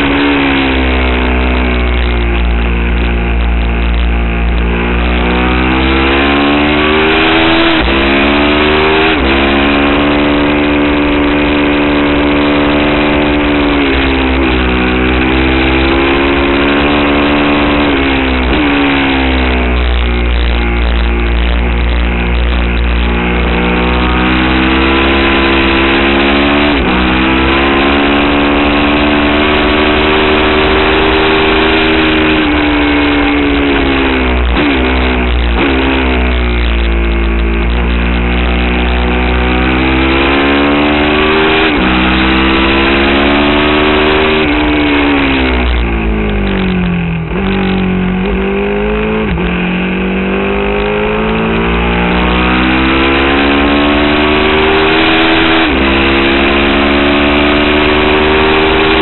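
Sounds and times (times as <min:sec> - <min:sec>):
motorcycle engine revving: 0:00.0 - 0:59.0
wind noise: 0:30.3 - 0:53.6.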